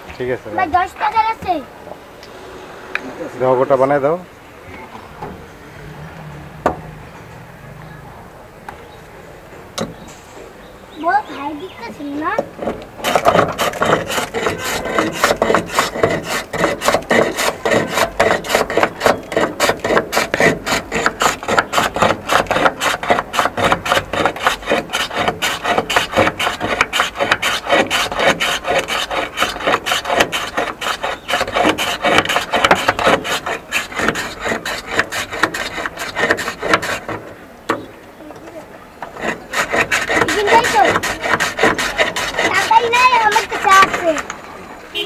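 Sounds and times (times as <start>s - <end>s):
ice rasping on shaving blade: 12.6s - 37.3s, 39.1s - 44.3s.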